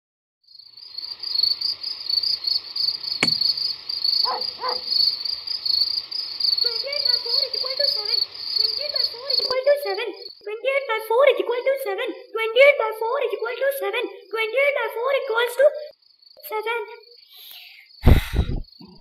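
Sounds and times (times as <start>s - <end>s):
crickets chirping: 0.5s - 19.0s
sharp knock: 3.2s - 3.6s
short calls: 3.2s - 5.2s.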